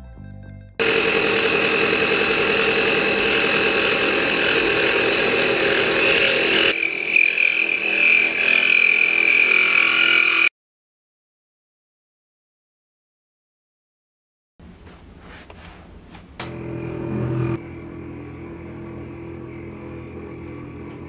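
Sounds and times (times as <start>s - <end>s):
cnc mill cutting metal whine: 0.8s - 10.5s, 16.5s - 21.0s.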